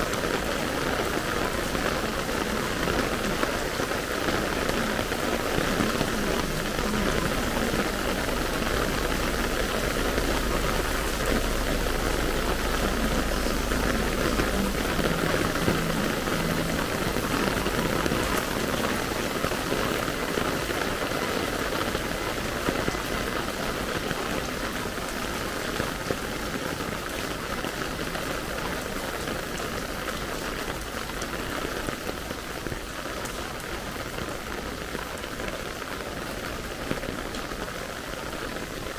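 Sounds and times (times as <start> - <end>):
heavy rain on pavement: 0.0 - 38.9
low rumble: 6.4 - 18.8.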